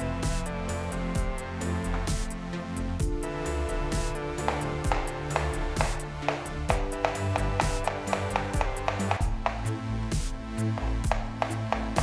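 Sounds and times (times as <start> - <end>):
background music: 0.0 - 12.0
knife chopping on wooden board: 4.4 - 9.7, 10.8 - 12.0.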